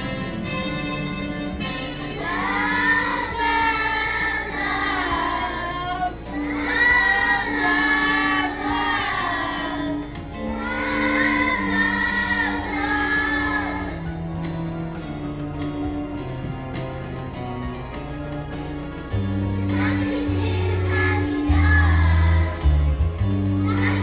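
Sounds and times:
children's choir singing: 0.0s - 14.4s, 19.4s - 22.9s, 23.6s - 24.0s
musical accompaniment: 0.0s - 24.0s.

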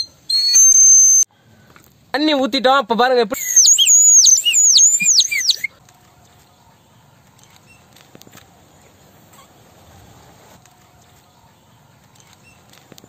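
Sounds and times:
water whistle warbling trill: 0.0s - 1.2s.

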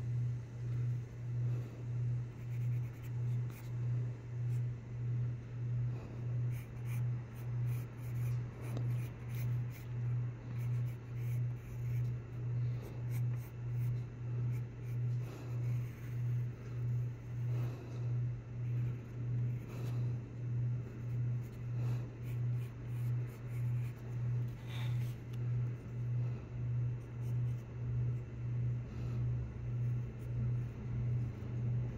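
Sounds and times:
loud low hum: 0.0s - 31.9s
pencil scratching on paper: 2.4s - 3.9s, 6.0s - 20.2s, 20.8s - 25.2s, 29.7s - 31.9s.

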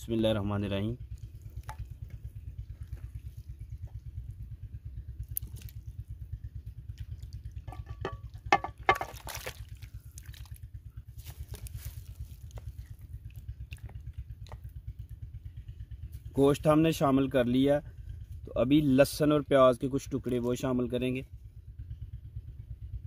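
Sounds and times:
low pulsing rumble: 0.0s - 23.0s
meat splashing into water: 5.2s - 5.9s, 8.8s - 10.7s.

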